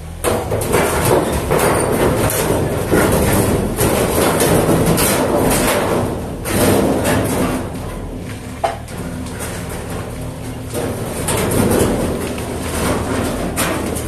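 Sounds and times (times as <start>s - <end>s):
excavator diesel engine running: 0.0s - 14.0s
rubble clattering onto floor: 0.5s - 14.0s.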